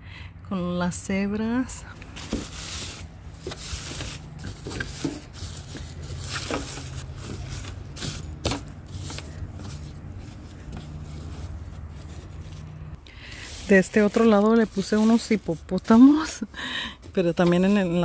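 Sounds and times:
plastic tablecloths crinkling: 2.0s - 12.6s.

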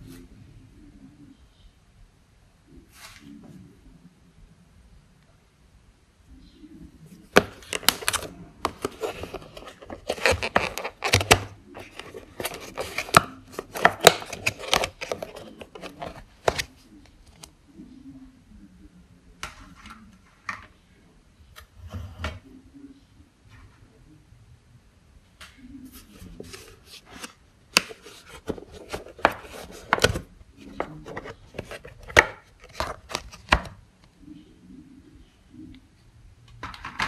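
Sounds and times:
plastic lid crackling: 7.3s - 16.7s, 26.4s - 33.8s
plastic crinkles: 7.4s - 17.4s.

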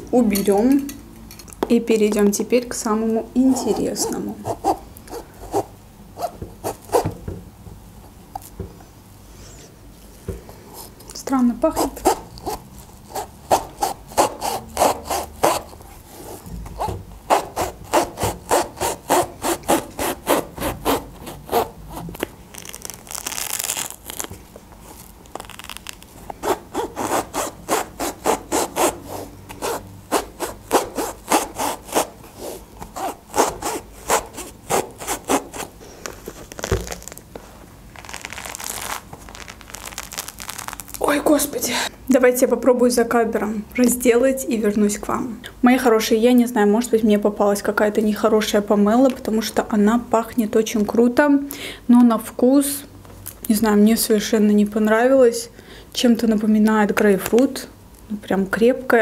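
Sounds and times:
knife sawing through rind: 11.8s - 16.4s, 17.3s - 21.7s, 26.4s - 35.7s
peel pulled apart by hand: 22.2s - 26.4s, 36.0s - 37.3s.

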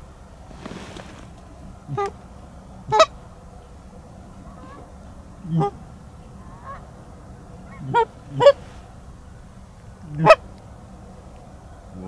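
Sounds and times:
goose honking: 2.9s - 3.1s, 7.6s - 8.7s.

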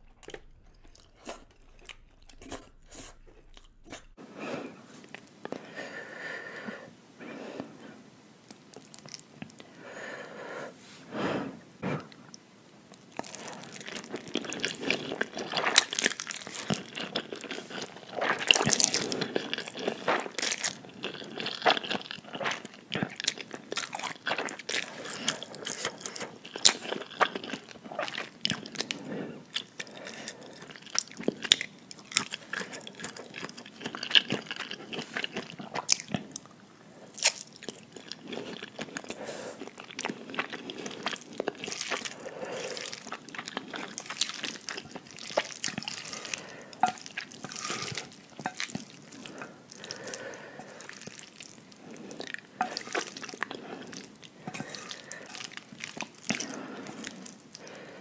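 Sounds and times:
chewing: 0.0s - 4.2s, 8.4s - 9.7s, 12.0s - 58.0s
slurping noodles: 38.2s - 58.0s.

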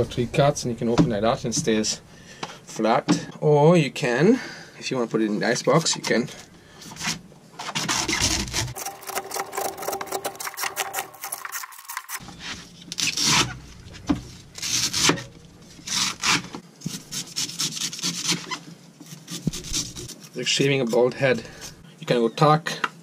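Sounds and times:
knife scraping coconut husk: 5.6s - 21.8s.

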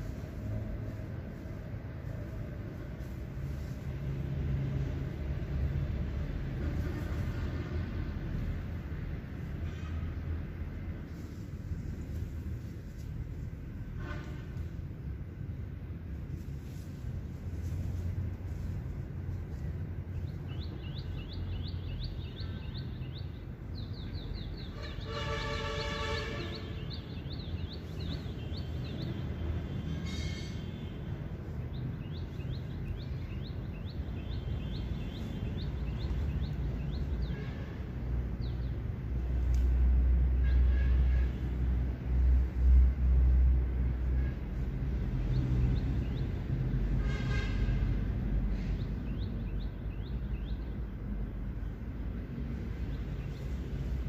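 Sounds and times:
distant horn: 13.8s - 14.8s, 24.6s - 27.4s, 46.8s - 48.1s.

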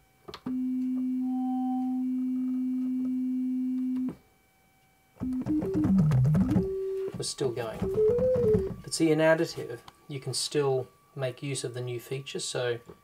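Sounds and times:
synthesizer steady pure tone: 0.5s - 9.4s
faint higher tone: 0.6s - 3.9s.

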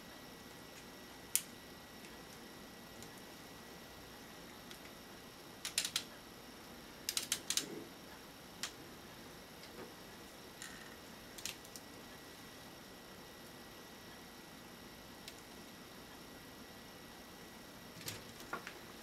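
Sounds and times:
plastic toy parts clicking: 5.6s - 6.0s, 7.1s - 7.7s.

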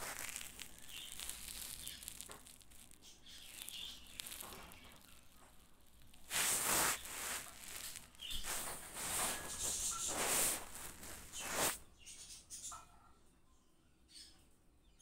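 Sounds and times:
squirrel scrambling on a towel: 0.0s - 11.8s.

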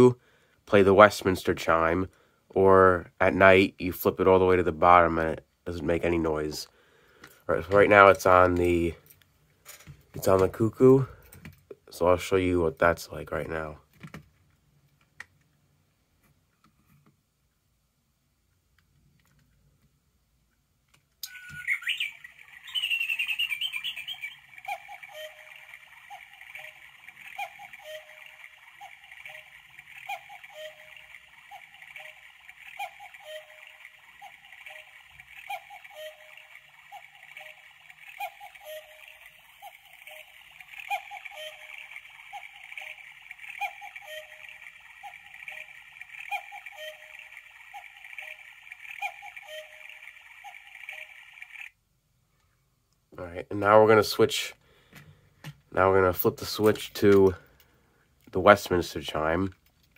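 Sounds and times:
chirping hissing background: 21.2s - 51.7s
electronic cuckoo call: 21.2s - 51.8s.

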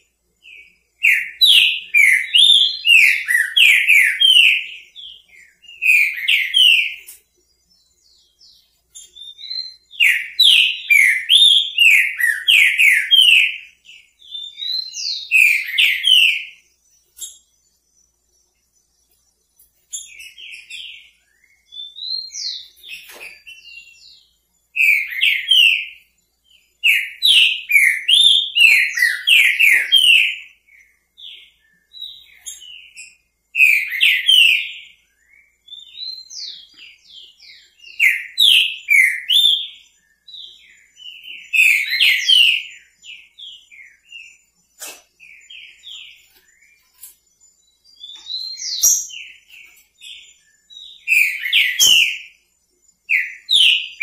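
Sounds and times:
bird singing whistled phrases: 0.4s - 7.1s, 9.0s - 17.4s, 24.8s - 26.0s, 26.8s - 30.6s, 31.2s - 44.4s, 47.9s - 52.4s, 53.1s - 54.0s.

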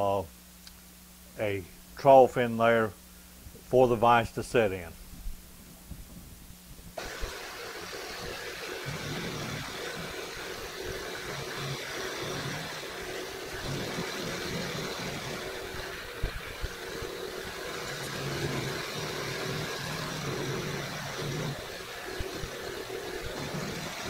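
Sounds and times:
milling machine hum: 7.0s - 24.0s.

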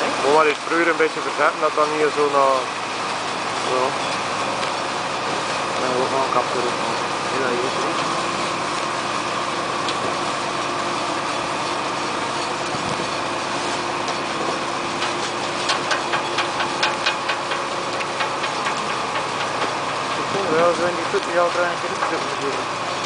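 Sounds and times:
harvester machinery running: 0.0s - 23.0s
rapid sharp clacks: 15.0s - 20.4s.

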